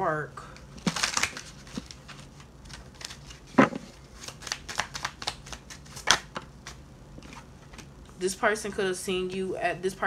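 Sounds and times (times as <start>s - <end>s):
cards shuffling: 0.8s - 7.9s.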